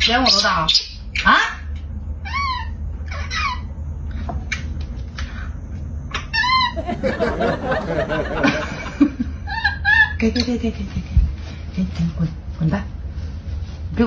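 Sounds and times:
monkey squeals: 0.0 - 1.6, 2.2 - 3.8, 6.1 - 6.9.

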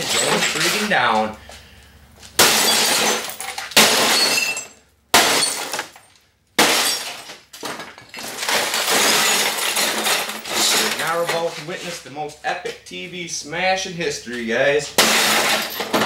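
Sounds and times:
television glass shattering: 0.0 - 1.1, 2.4 - 11.3, 15.0 - 16.0.

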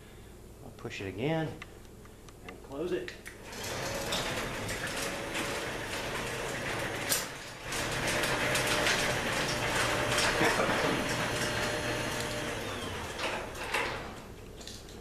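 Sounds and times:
garage door opener rumbling: 3.4 - 14.4.

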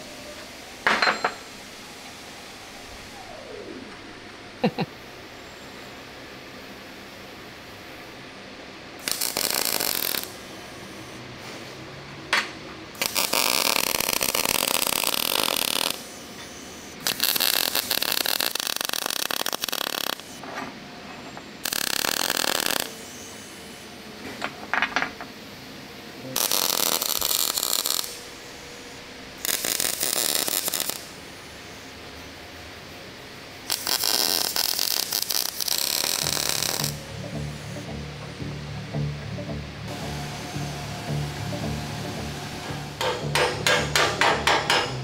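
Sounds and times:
metalworking tool harsh hiss: 9.0 - 11.2, 13.0 - 20.4, 21.6 - 23.9, 26.4 - 31.9, 33.6 - 37.0.

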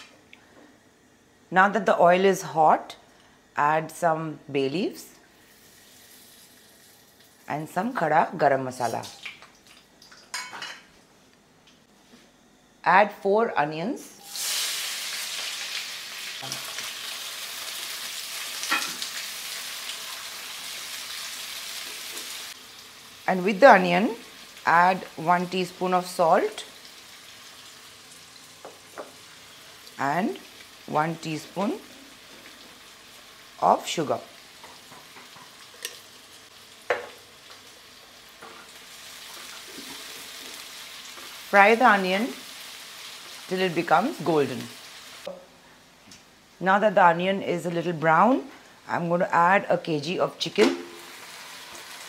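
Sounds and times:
onions sizzling in oil: 5.4 - 7.5, 14.2 - 45.3, 50.7 - 52.0.

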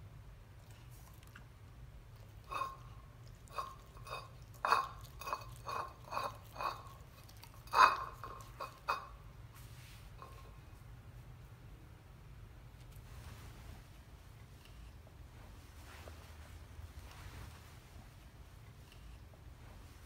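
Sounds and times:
clicks and knocks on a plate: 3.4 - 9.2.

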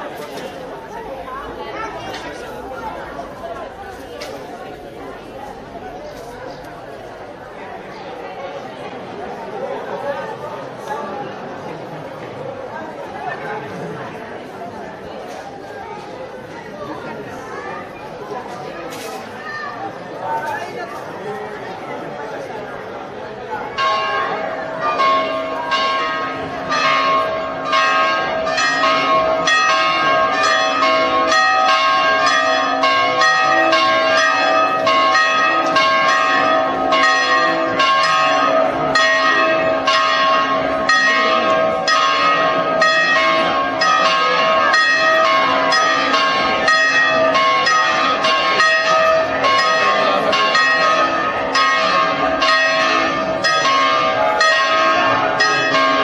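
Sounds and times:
church bells ringing a peal: 23.4 - 56.0.

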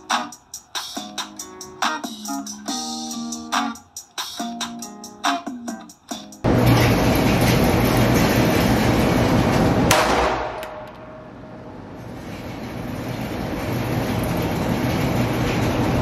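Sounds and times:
rushing noise with hum: 6.4 - 16.0
handgun shot: 9.9 - 11.2.

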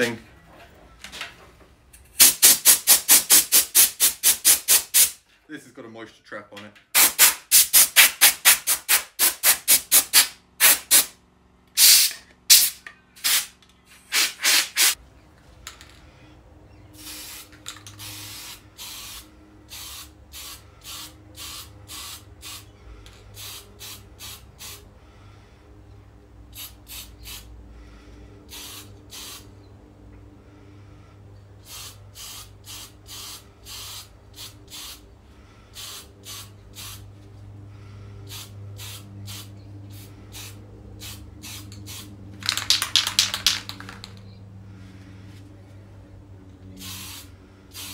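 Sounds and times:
air blow gun blasts: 2.2 - 5.2, 7.0 - 11.1, 11.8 - 13.5, 14.1 - 15.0
short hissing bursts: 2.2 - 5.2, 7.0 - 11.2, 11.8 - 13.5, 14.1 - 15.0, 17.0 - 22.7, 23.3 - 24.8, 26.5 - 27.5, 28.5 - 29.5, 31.6 - 37.1, 37.8 - 44.2, 46.8 - 47.9.

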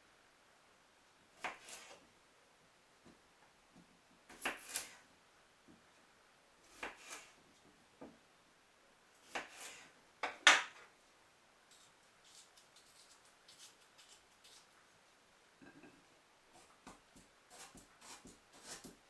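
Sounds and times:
knife slicing potatoes: 1.4 - 2.0, 4.3 - 5.0, 6.6 - 7.4, 9.2 - 10.7, 16.6 - 19.0.

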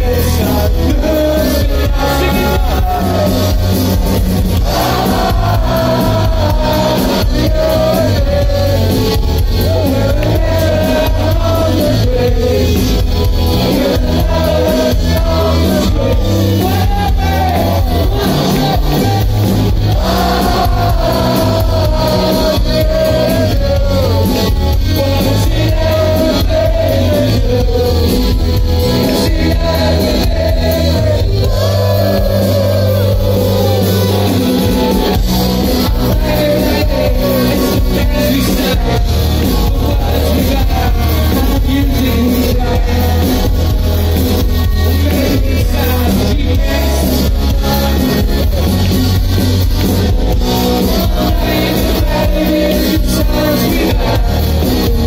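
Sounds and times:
man singing: 0.0 - 55.0
rock band playing: 0.0 - 55.0.

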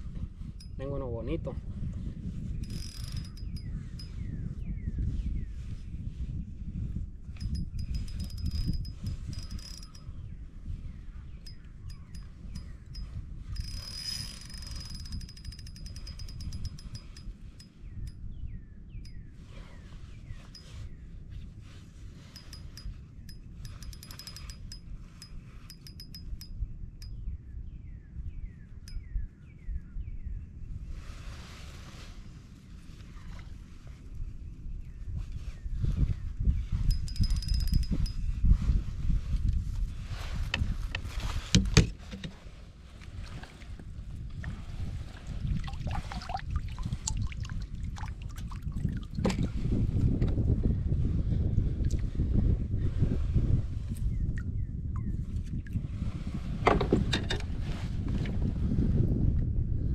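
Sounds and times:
wind rumble on microphone: 0.0 - 59.9
kayak knocks and clicks: 40.4 - 42.5, 49.2 - 49.5, 56.6 - 57.5.

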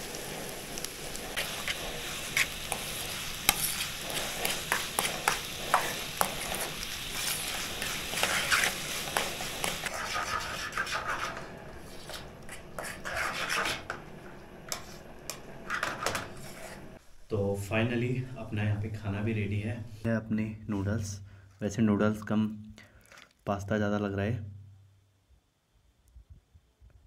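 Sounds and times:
noodles sizzling in a pan: 0.0 - 17.2
utensil scraping a pan: 1.1 - 14.1, 14.7 - 17.0.

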